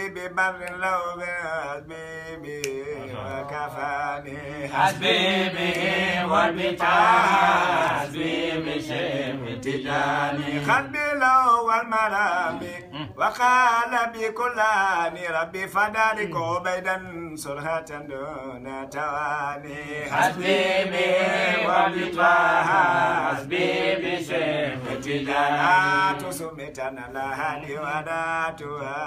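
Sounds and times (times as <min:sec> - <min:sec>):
men chanting: 0:00.0 - 0:14.4, 0:15.0 - 0:29.0.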